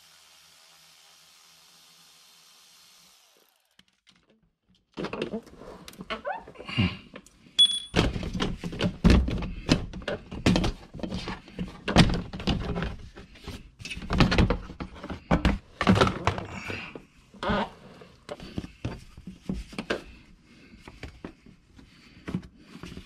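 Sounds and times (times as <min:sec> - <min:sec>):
knocks and thunks on plastic: 0:08.0 - 0:13.2, 0:14.0 - 0:16.5.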